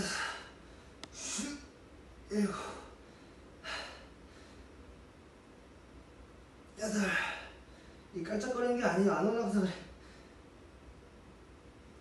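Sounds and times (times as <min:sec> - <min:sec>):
man grunting: 0:02.3 - 0:02.9, 0:06.8 - 0:07.5.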